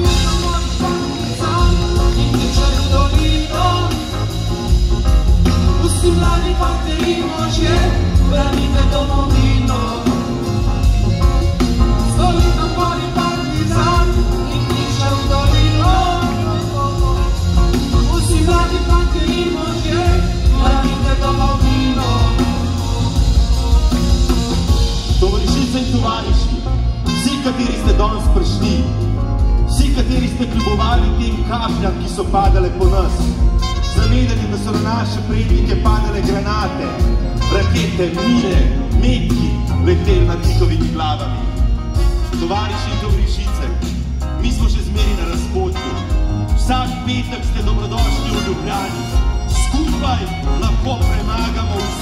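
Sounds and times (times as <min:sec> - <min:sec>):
male singing: 0:00.0 - 0:04.2, 0:05.8 - 0:10.5, 0:12.1 - 0:22.8, 0:29.8 - 0:33.3, 0:33.9 - 0:41.4, 0:44.4 - 0:46.0, 0:46.6 - 0:52.0
drums: 0:00.0 - 0:52.0
keyboard: 0:00.0 - 0:52.0
violin: 0:44.6 - 0:52.0.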